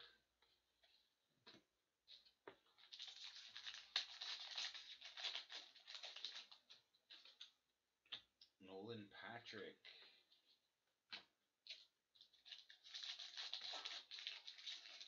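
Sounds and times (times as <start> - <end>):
foil wrapper crinkling: 2.8 - 7.4, 11.7 - 15.0.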